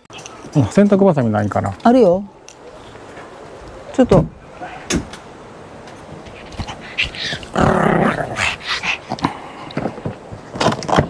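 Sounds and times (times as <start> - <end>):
small dog growling: 6.3 - 9.8.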